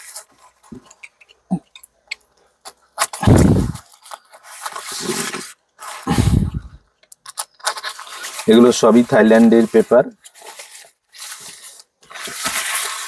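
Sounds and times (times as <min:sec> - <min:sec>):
paper rustling and crinkling: 0:00.0 - 0:01.1, 0:02.6 - 0:13.0
paper crumpling: 0:02.6 - 0:13.0
knife slitting paper: 0:07.6 - 0:13.0.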